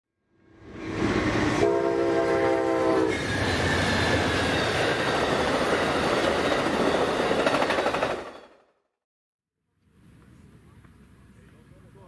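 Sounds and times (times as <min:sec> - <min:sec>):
train horn chord: 0:01.5 - 0:03.1
train wheels on rails: 0:02.4 - 0:08.6.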